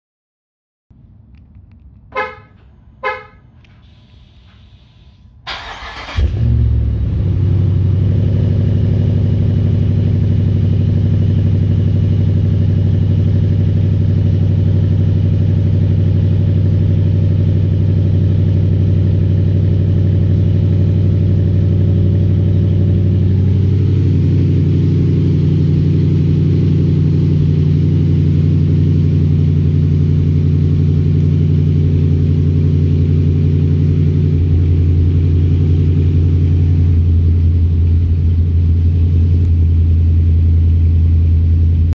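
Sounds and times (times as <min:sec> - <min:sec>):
engine cranking and idling: 0:03.6 - 0:07.3, 0:13.8 - 0:41.8.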